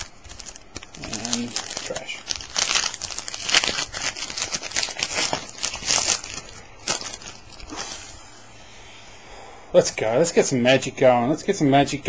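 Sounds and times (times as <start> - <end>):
foil wrapper crumpled by hand: 0.0 - 8.1.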